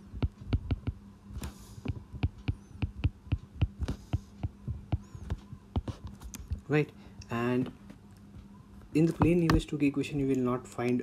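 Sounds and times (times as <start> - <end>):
steady low hum: 0.0 - 11.0
stylus tapping on glass screen: 0.2 - 1.0, 1.9 - 6.6.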